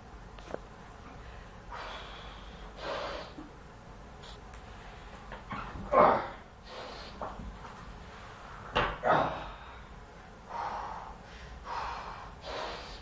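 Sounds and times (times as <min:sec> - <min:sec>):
person breathing hard: 0:01.2 - 0:03.5, 0:06.3 - 0:07.4, 0:09.2 - 0:13.0.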